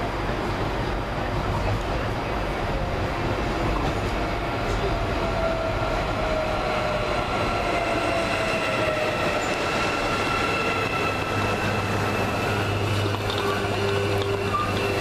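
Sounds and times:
train rolling on rails: 0:00.0 - 0:15.0.

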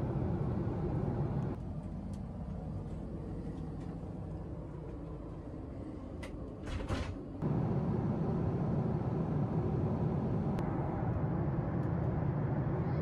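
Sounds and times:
airliner cabin noise: 0:00.0 - 0:13.0
lavatory door and latch clacks: 0:06.6 - 0:07.2.

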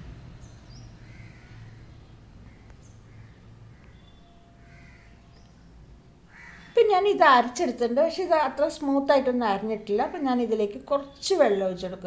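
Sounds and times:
low steady hum: 0:00.0 - 0:12.0
crows cawing faintly: 0:01.0 - 0:06.9.

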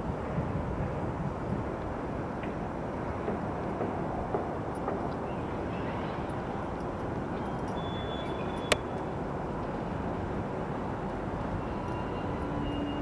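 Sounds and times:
distant train rumble: 0:00.0 - 0:13.0.

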